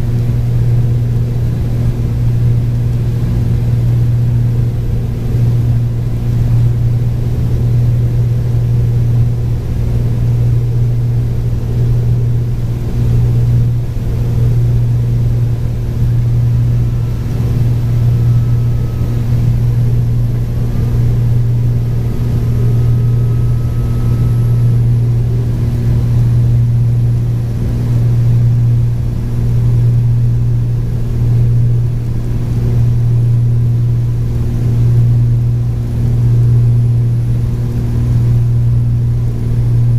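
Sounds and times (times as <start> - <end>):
twin piston engines droning: 0.0 - 35.0
faint thin whistle: 22.6 - 24.9.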